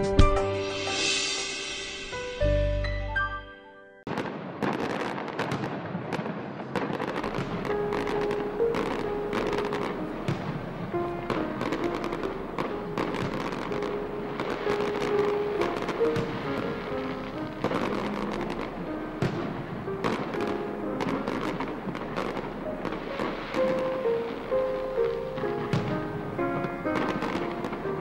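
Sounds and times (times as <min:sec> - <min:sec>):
music cue: 0:00.0 - 0:04.0
fireworks crackling and popping: 0:04.1 - 0:28.0.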